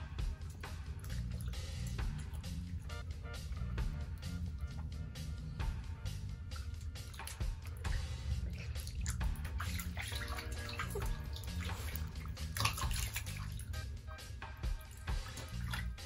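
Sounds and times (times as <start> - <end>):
water running into bathtub: 0.0 - 16.0
ball knocks and splashes: 6.9 - 13.7, 14.7 - 16.0.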